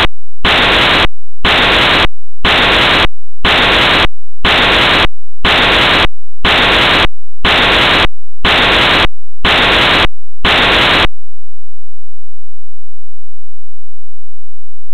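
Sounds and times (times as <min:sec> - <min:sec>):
pulses of static hiss: 0:00.0 - 0:11.1.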